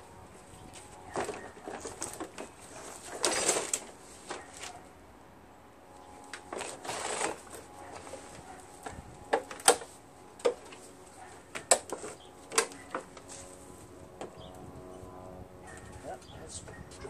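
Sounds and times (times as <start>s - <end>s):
scraping rustle: 0.6s - 4.9s, 6.4s - 9.1s, 10.6s - 14.0s.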